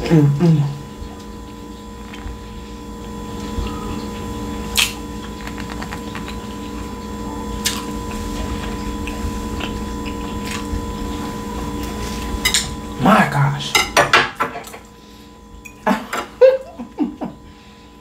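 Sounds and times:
steady background hum: 0.0 - 18.0
chewing steak: 0.9 - 12.8
wet mouth sounds: 3.6 - 6.9.

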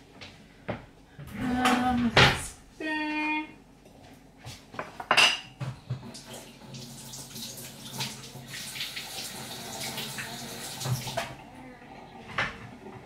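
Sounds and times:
dishes and utensils clinking: 4.8 - 5.8
water running at sink: 5.7 - 13.0.

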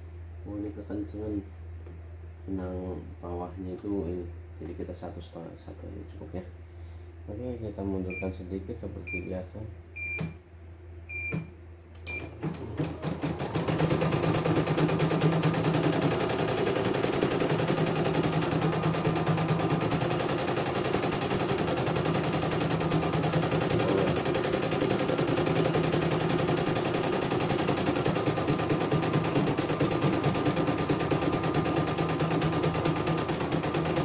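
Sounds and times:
short control panel beeps: 8.1 - 8.4, 9.1 - 9.3, 10.0 - 10.4, 11.1 - 12.4.

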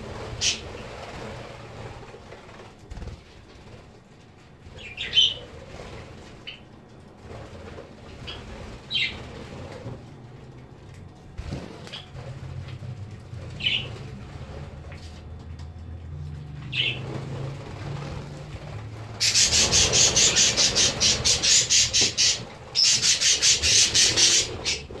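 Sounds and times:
wings flapping: 0.0 - 25.0
budgerigars chirping: 4.8 - 5.4, 13.6 - 13.9, 19.2 - 25.0.

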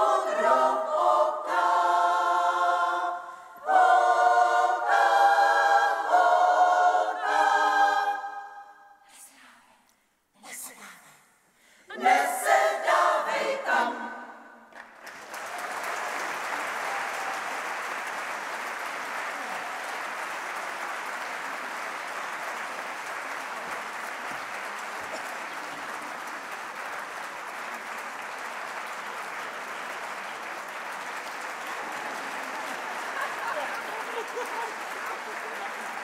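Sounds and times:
women's choir singing: 0.0 - 9.0, 11.9 - 14.7
audience applause: 14.7 - 36.0.

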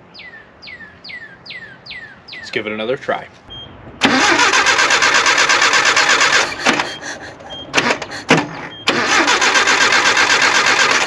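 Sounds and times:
engine cranking on starter: 4.0 - 11.0.

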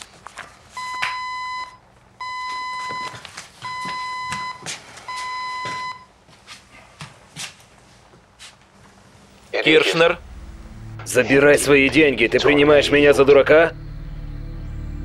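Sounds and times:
electronic alert beeping: 0.8 - 6.0
footsteps: 2.4 - 9.1.

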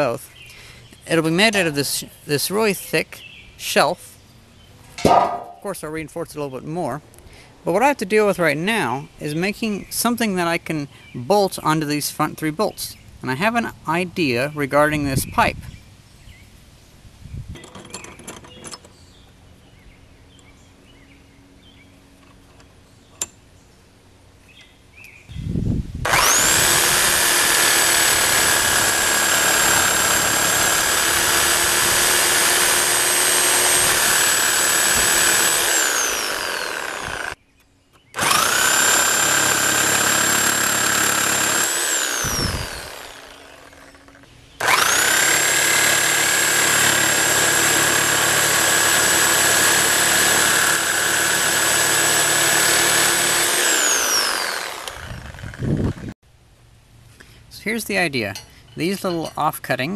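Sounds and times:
power tool cutting steel pipe: 26.1 - 37.4, 38.2 - 56.1.

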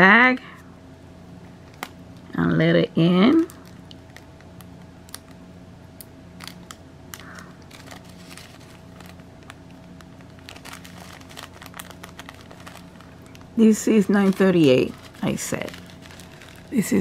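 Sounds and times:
faint steady hum: 0.0 - 17.0
plastic bags crinkling: 3.3 - 5.4, 6.4 - 17.0.

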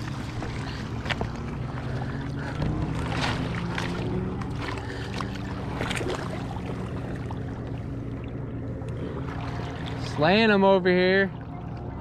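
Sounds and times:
motorboat engine drone: 0.0 - 12.0
water splashing: 0.0 - 12.0.

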